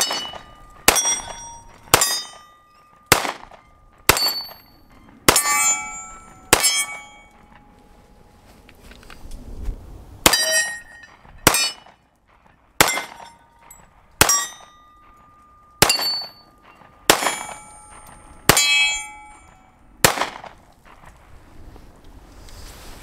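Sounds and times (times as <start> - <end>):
pistol shots: 0.0 - 2.4, 3.1 - 4.6, 11.4 - 11.9, 12.8 - 13.3, 15.8 - 17.7, 20.0 - 20.6
steel target ringing: 0.0 - 7.7, 10.2 - 12.0, 12.8 - 20.5.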